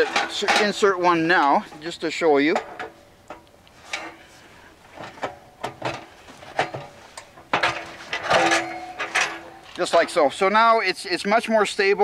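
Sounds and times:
metal pipe clinks and knocks: 6.6s - 10.2s.

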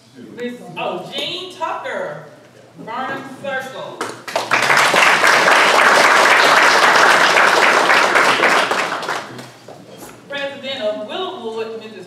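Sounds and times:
audience clapping: 4.2s - 9.7s.

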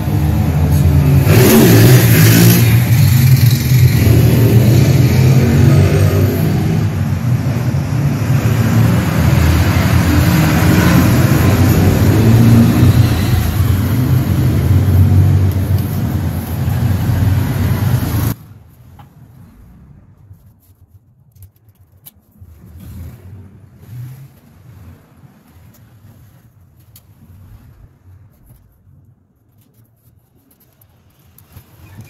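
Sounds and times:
loud engine rumbling: 0.0s - 18.4s.

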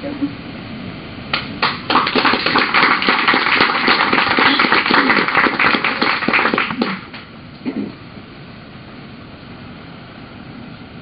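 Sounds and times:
audience applauding: 1.6s - 7.3s.

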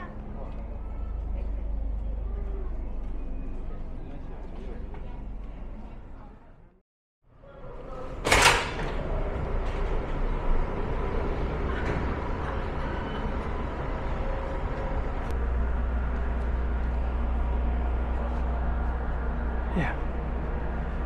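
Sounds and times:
outdoor background noise: 0.0s - 21.0s
heavy low rumble: 9.2s - 21.0s.

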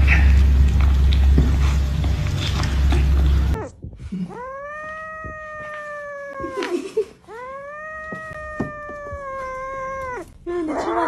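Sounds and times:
kitten meowing: 4.3s - 6.7s, 7.3s - 10.4s.

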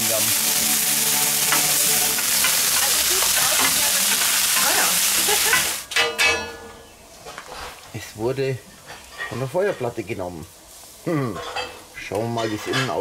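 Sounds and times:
steak sizzling on hot plate: 0.0s - 5.9s
tongs clattering on metal plate: 1.4s - 6.7s.

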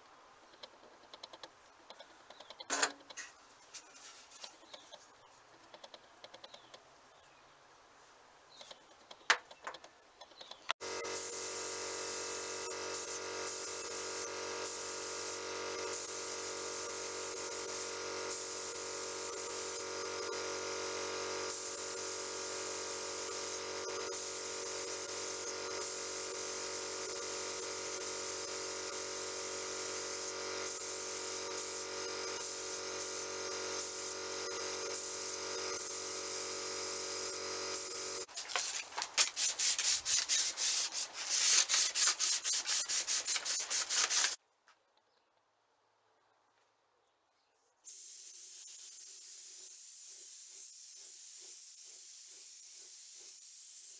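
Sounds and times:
machine hum: 10.8s - 38.3s
spray gun hissing: 10.8s - 44.4s, 47.9s - 53.9s
sandpaper rubbing on metal: 38.2s - 44.4s.

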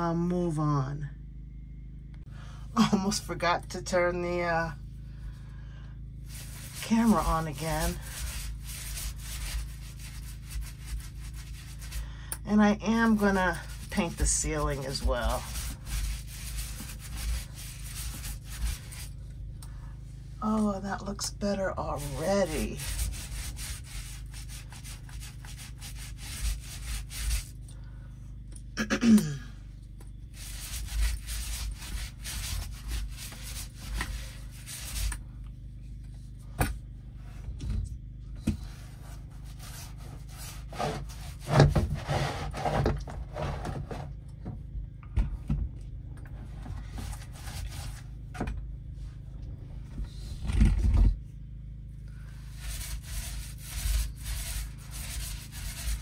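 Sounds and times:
paint roller rubbing strokes: 6.2s - 19.3s, 20.1s - 27.7s, 30.2s - 35.3s, 38.5s - 44.1s, 46.4s - 48.2s, 52.2s - 56.0s.

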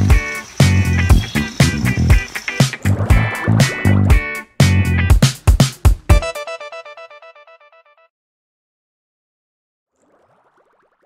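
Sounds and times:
music with a strong beat: 0.0s - 6.7s.

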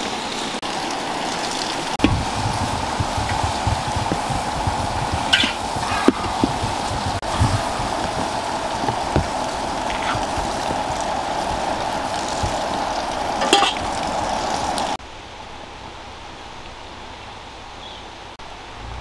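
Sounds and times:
fish sizzling in oil: 0.0s - 15.0s
outdoor hiss: 0.0s - 19.0s.

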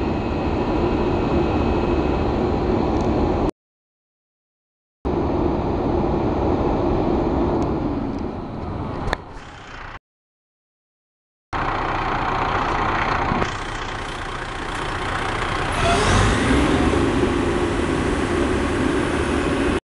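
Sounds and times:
fire truck engine running: 11.6s - 19.8s
rising hydraulic whine: 11.6s - 19.8s.

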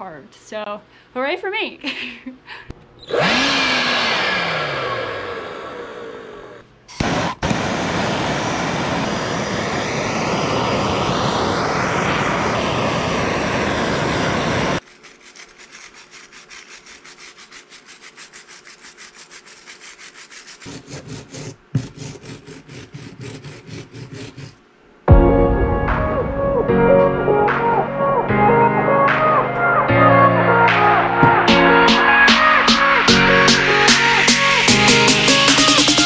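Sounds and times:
gas torch flame rushing: 6.9s - 14.8s
wire brush scrubbing wood: 14.8s - 24.6s
sharp knock: 31.2s - 31.6s.

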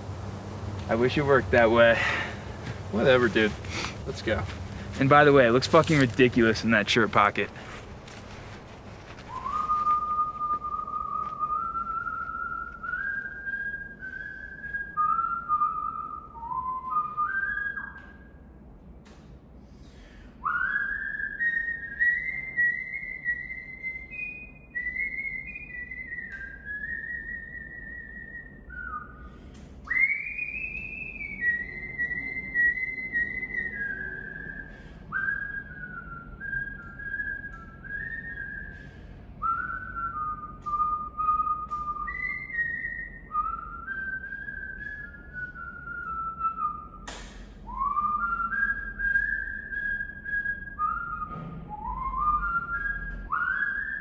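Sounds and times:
person whistling a tune: 9.3s - 18.4s, 20.4s - 47.0s, 47.6s - 54.0s
sharp click: 47.0s - 47.5s.

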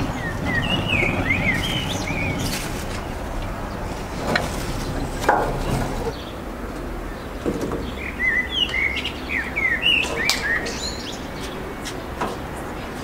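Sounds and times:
small birds chirping: 0.0s - 13.0s
sharp knocks: 4.1s - 6.1s.

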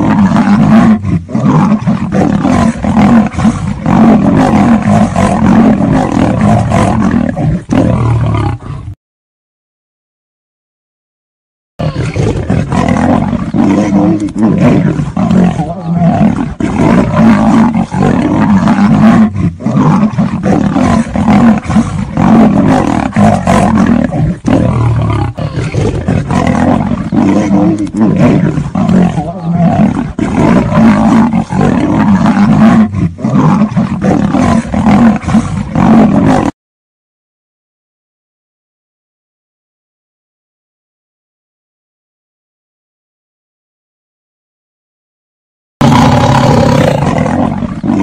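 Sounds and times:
big cats snarling and roaring: 0.0s - 9.0s, 11.8s - 36.6s, 45.8s - 48.0s.

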